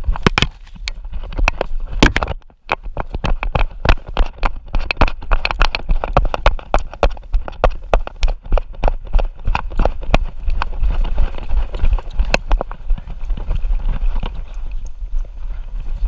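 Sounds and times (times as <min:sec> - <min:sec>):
camera mount jolting: 0:00.1 - 0:06.2.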